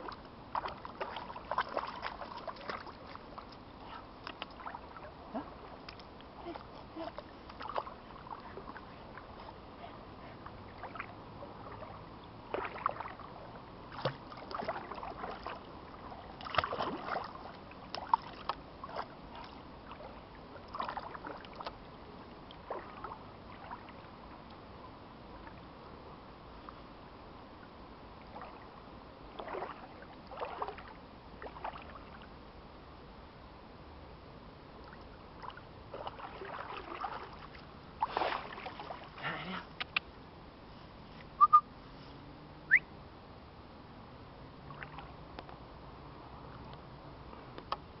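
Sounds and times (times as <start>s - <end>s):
water splashing around dog's legs: 0.0s - 9.4s, 10.7s - 21.8s, 29.3s - 32.1s, 34.9s - 40.0s
faint steady hiss: 0.0s - 48.0s.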